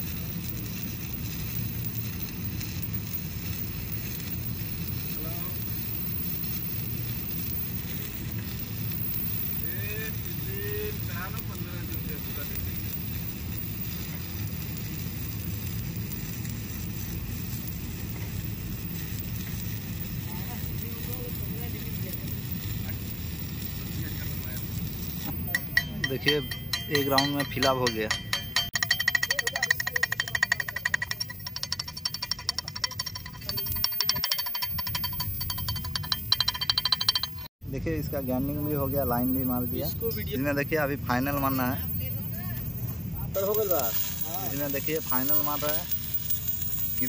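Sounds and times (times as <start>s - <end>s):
welding arc crackling: 0.0s - 47.0s
music with fast ticking beat: 25.5s - 37.5s.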